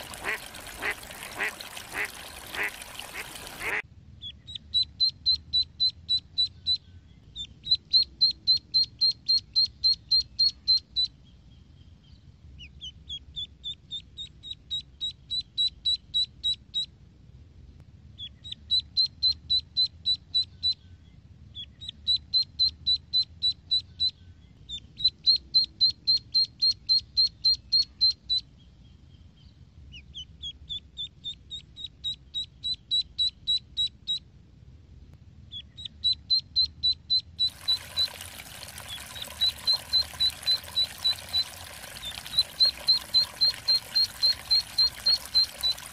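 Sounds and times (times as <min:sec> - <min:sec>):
ducklings peeping: 0:00.0 - 0:03.8, 0:35.6 - 0:45.9.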